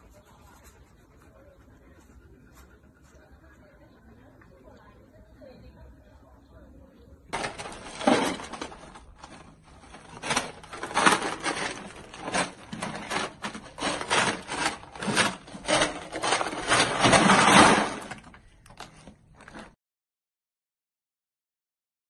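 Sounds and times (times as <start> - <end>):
ice cubes crunching and clattering: 7.4 - 19.7.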